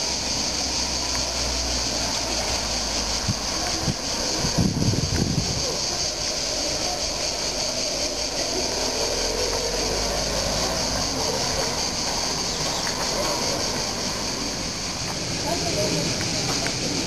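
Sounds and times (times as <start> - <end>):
crickets chirping: 0.0 - 17.0
low street rumble: 0.0 - 17.0.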